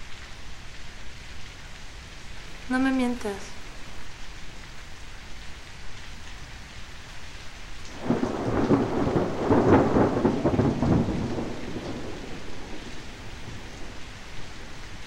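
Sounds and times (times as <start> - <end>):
steady rain: 0.0 - 15.0
thunder rolling: 7.9 - 14.7.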